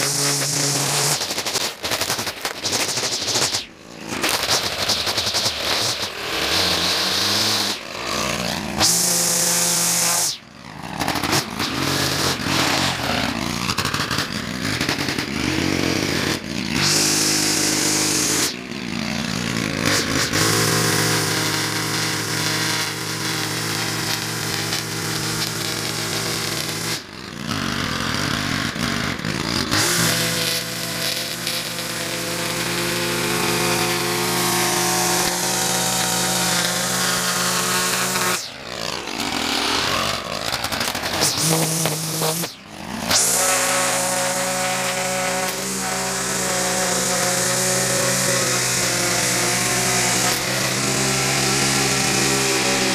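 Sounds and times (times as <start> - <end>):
cutting line hissing: 0.0 - 7.8, 8.8 - 10.4, 16.8 - 18.6, 29.7 - 52.9
string trimmer engine revving: 0.0 - 52.9.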